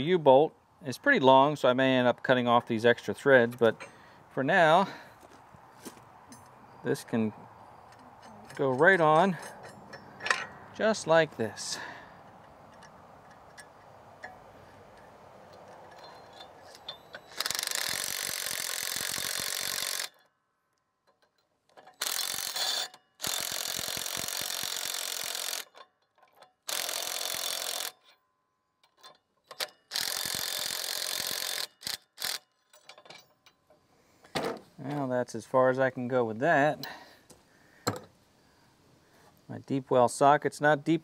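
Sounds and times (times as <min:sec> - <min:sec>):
impact driver hammering nut: 0:17.2 - 0:20.2, 0:21.9 - 0:25.7.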